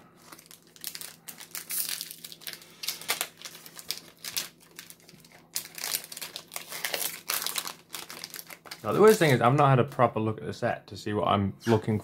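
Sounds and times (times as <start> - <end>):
foil wrapper crinkling: 0.1 - 9.5
trading cards rustling: 0.2 - 9.4.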